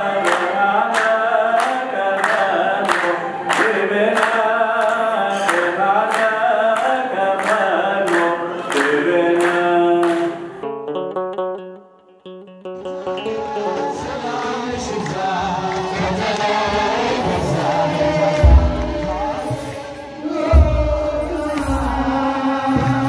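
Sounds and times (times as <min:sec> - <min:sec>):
man singing a hymn: 0:00.0 - 0:10.6, 0:13.2 - 0:23.0
steady sharp beat: 0:16.4 - 0:23.0.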